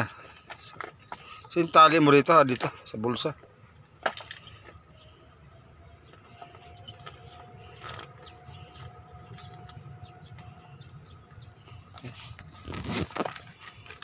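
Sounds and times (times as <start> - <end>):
insects chirring: 0.0 - 14.0
backpack being handled: 11.8 - 14.0.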